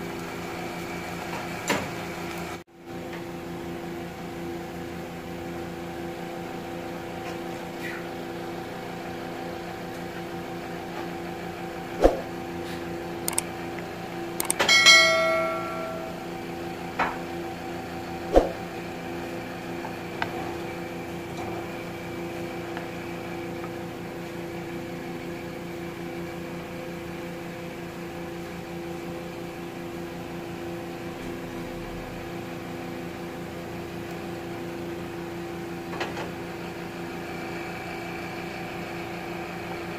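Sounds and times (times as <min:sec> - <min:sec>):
steady hum with held tones: 0:02.9 - 0:35.4
bright metallic ring: 0:14.4 - 0:16.5
utensils knocking against pot: 0:14.6 - 0:16.2.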